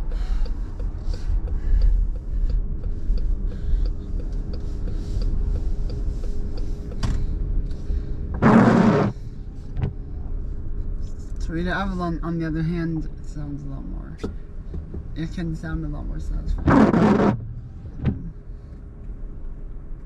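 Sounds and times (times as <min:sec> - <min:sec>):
turn signal ticking: 0:00.0 - 0:09.2
low road rumble: 0:00.0 - 0:20.0.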